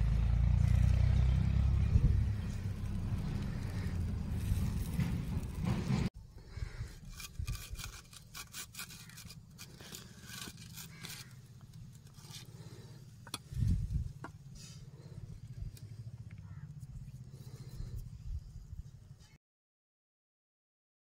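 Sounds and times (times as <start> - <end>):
loud low rumble: 0.0 - 6.1
metal skewers scraping on bricks: 2.4 - 6.1, 6.7 - 15.8.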